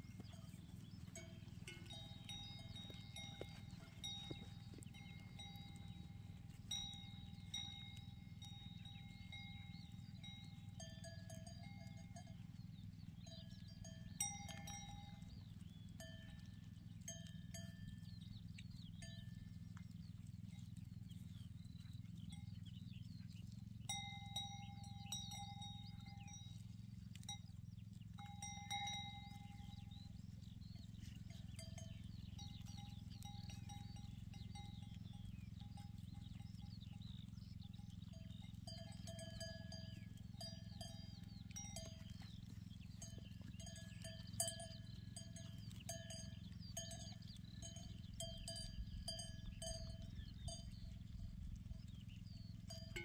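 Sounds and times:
steady low hum: 0.0s - 26.6s
birds chirping: 0.0s - 26.7s, 27.4s - 53.0s
goat bells clinking and ringing: 0.0s - 53.0s.

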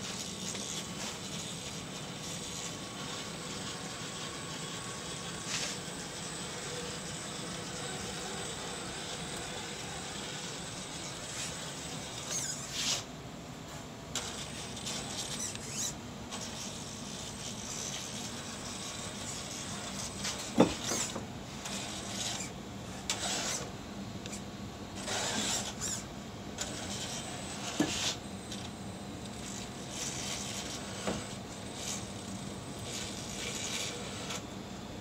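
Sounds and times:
toy car motor whirring: 4.5s - 13.0s, 14.1s - 24.4s, 25.0s - 28.7s, 29.3s - 34.4s.

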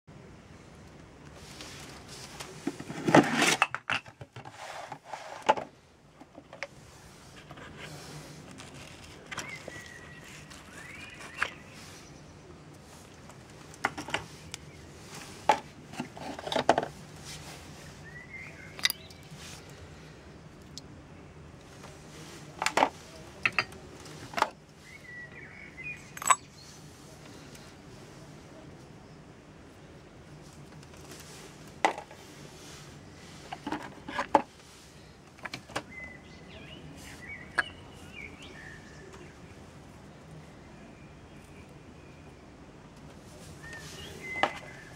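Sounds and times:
bird chirping: 9.2s - 12.5s, 17.9s - 19.6s, 35.9s - 39.4s.

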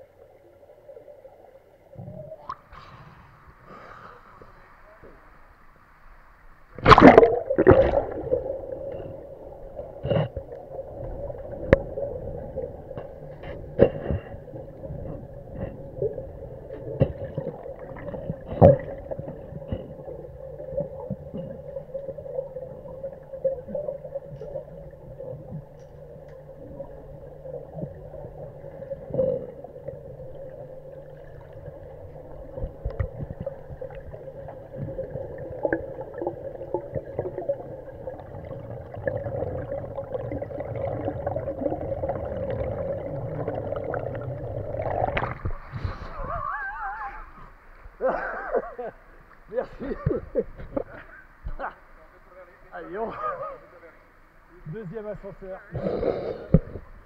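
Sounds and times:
underwater hum: 0.0s - 57.0s
splash into water: 6.8s - 8.3s
rush of bubbles: 6.8s - 10.0s, 27.6s - 46.6s
sharp underwater clicks and knocks: 32.6s - 33.5s.

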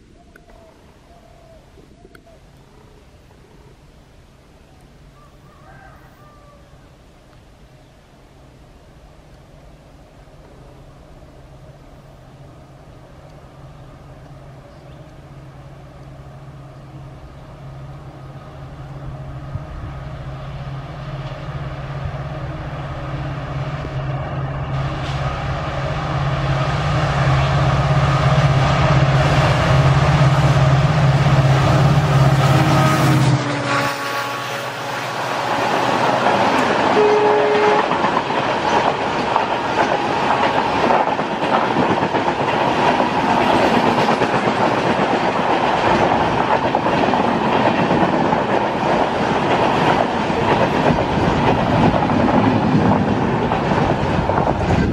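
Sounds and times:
diesel locomotive engine drone: 6.7s - 54.9s.

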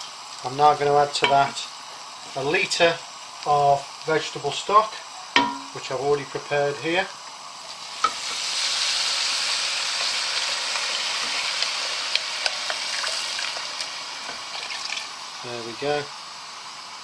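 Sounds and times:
hissing sizzle in pan: 0.0s - 17.0s
liquid poured into pot: 12.1s - 13.7s, 14.4s - 15.2s.

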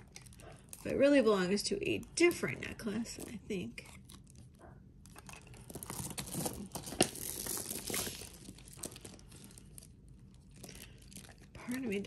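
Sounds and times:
packaging rustling: 5.1s - 11.5s.

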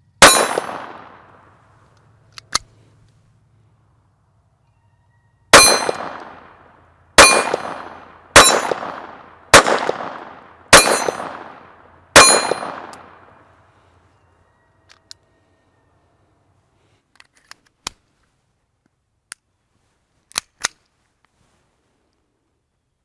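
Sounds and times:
steel plate target ringing: 0.2s - 1.0s, 5.5s - 6.4s, 7.2s - 9.2s, 10.7s - 11.5s, 12.2s - 12.9s
pistol shots: 0.2s - 1.4s, 5.5s - 6.6s, 7.2s - 13.4s.

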